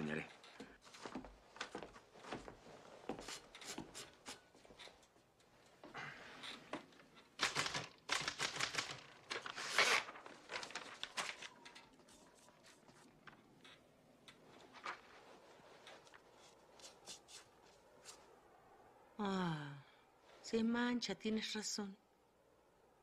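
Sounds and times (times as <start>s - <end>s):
paper rustling: 7.1s - 13.8s, 14.5s - 18.3s.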